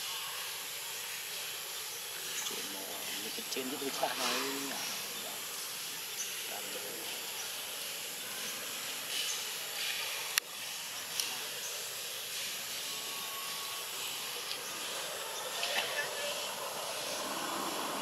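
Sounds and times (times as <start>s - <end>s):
high outdoor hiss: 0.0s - 18.0s
faint high chirps: 8.2s - 17.6s.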